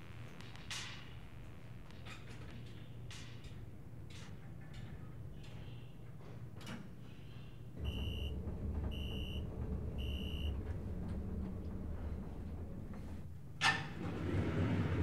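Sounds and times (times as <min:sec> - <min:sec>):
elevator rumble: 0:07.6 - 0:15.0
short electronic beeps: 0:07.9 - 0:09.4.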